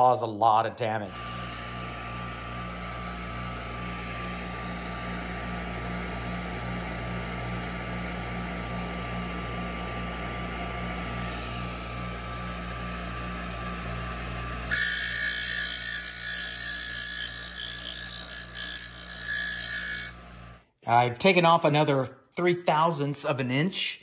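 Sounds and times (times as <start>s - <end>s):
grinding whine: 11.0s - 20.6s
grinder motor hum with throb: 11.1s - 20.6s.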